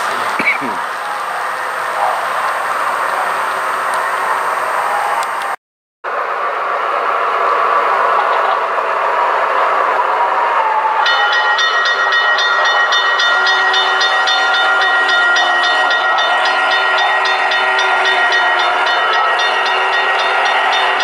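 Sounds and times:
bright ringing high pattern: 11.1s - 21.0s.

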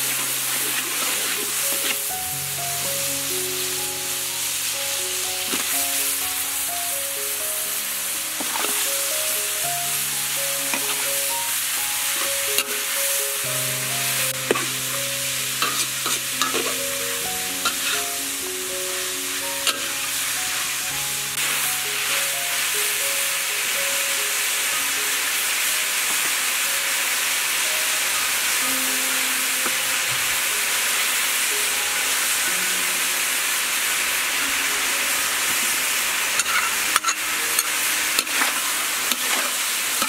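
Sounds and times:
meat sizzling in a wok: 0.0s - 40.0s
soft melodic background music: 0.0s - 40.0s
metal spatula scraping a pan: 15.6s - 16.8s, 17.6s - 18.2s, 36.3s - 40.0s.

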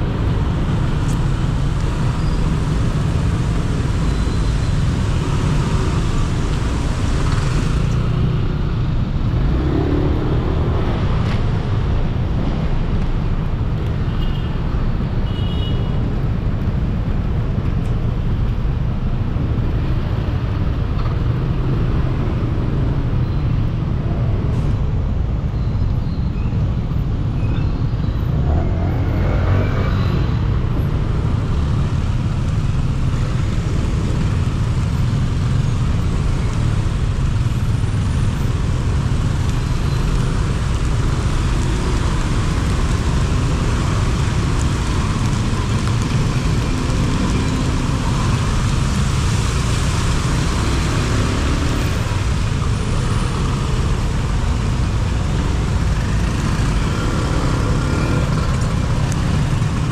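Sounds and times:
traffic engines rumbling: 0.0s - 59.9s
rain and wet tyres hissing: 0.1s - 14.1s, 28.5s - 59.9s.

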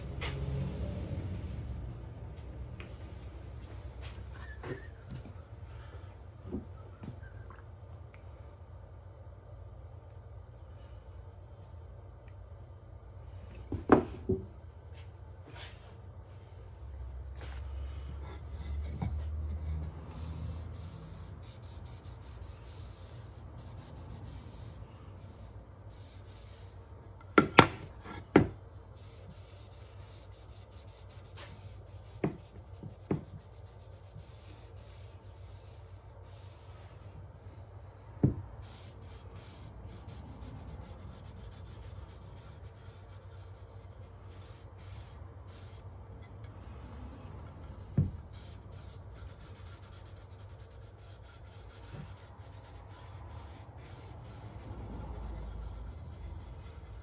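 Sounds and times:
steady low hum: 0.0s - 57.0s
cloth rubbing wood: 48.3s - 57.0s.

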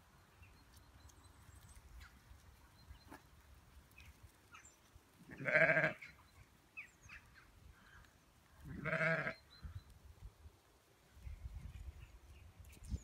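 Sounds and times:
sheep bleating: 5.3s - 6.1s, 8.7s - 9.4s.

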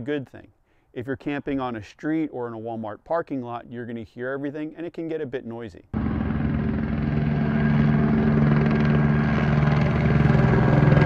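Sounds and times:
helicopter rotor chop: 6.0s - 11.0s.

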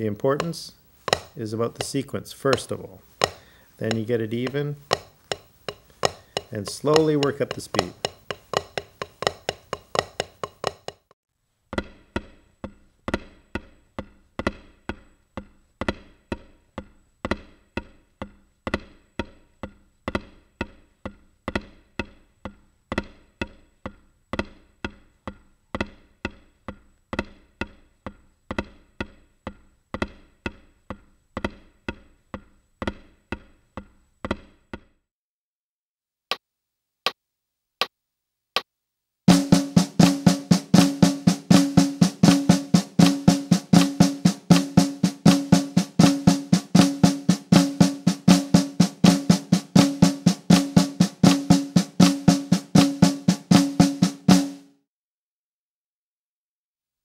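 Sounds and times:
drumsticks on practice pad: 0.0s - 11.1s, 39.3s - 54.7s.

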